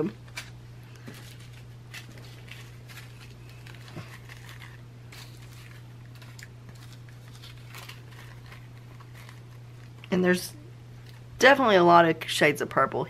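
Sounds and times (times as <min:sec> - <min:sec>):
steady low hum: 0:00.0 - 0:13.0
plastic bags crinkling: 0:00.2 - 0:10.3.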